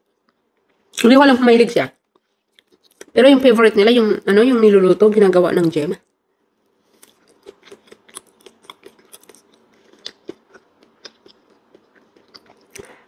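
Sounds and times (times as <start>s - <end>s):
person chewing soft food: 2.0s - 3.1s, 6.6s - 13.0s.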